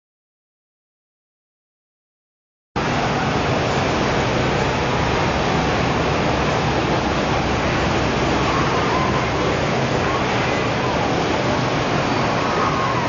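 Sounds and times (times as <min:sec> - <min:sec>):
steady rushing noise: 0:02.8 - 0:13.0.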